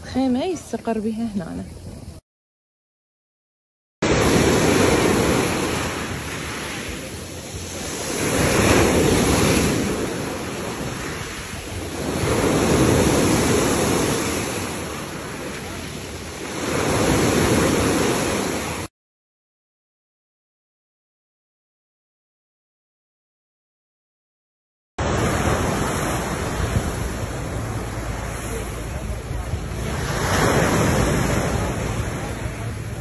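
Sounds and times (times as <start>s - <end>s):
waves breaking on pebble shore: 4.1s - 18.9s, 25.0s - 33.0s.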